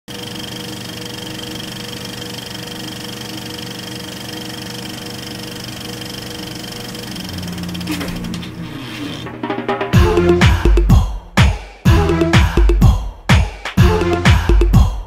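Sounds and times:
film projector whirring and clattering: 0.1 - 9.4
low hum: 6.0 - 10.6.

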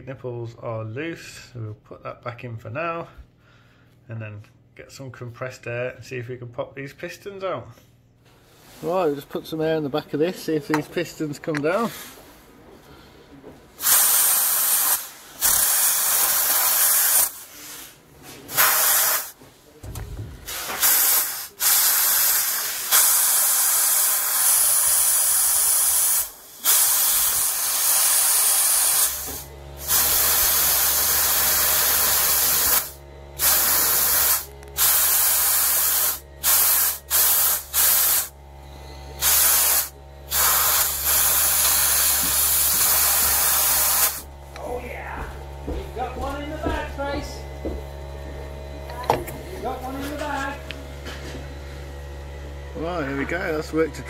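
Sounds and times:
compressed air hissing blasts: 13.8 - 19.4, 20.1 - 44.3
steady low hum: 19.4 - 20.8, 29.1 - 54.0.

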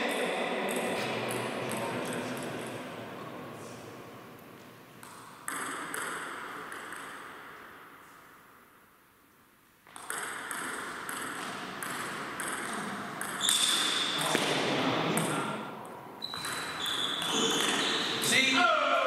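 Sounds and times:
table tennis ball bouncing: 5.0 - 8.0, 9.8 - 18.0.

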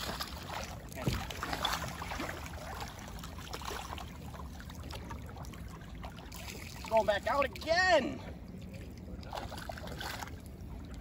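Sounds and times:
river water lapping: 0.0 - 11.0.

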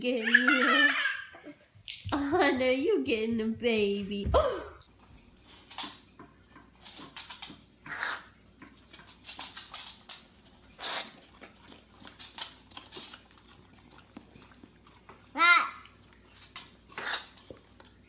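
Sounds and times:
dog licking: 10.5 - 18.0.

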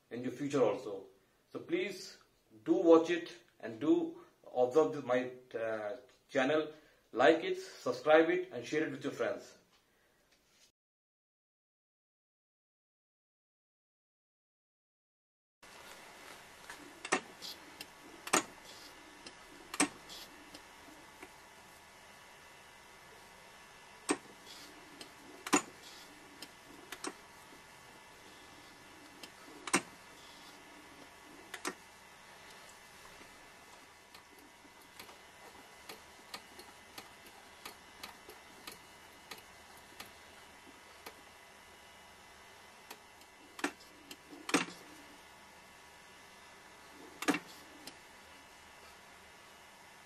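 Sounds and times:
microtome clicking: 16.7 - 21.4, 23.6 - 41.2
faint mechanical ticks: 32.4 - 41.3, 42.8 - 44.9.

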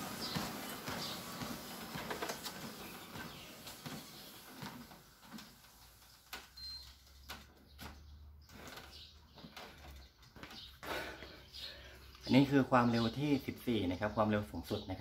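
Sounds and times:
treadmill humming: 0.0 - 7.3
running footfalls on treadmill: 0.0 - 11.8.

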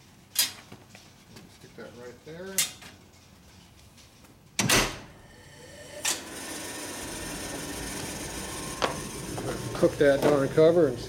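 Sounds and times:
oven humming and hissing: 1.2 - 11.0
steel door clanging shut: 4.6 - 5.1.

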